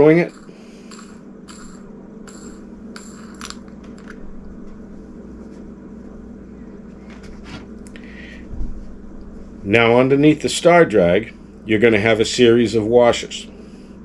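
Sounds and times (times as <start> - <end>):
steady low hum: 0.0 - 14.0
small reel parts clicking: 0.2 - 4.2.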